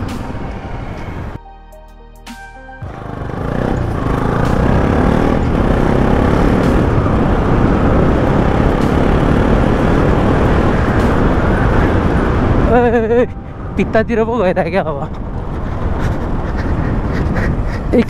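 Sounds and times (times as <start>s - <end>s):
motorcycle engine running: 2.8s - 12.3s
wind rushing over microphone: 3.3s - 18.0s.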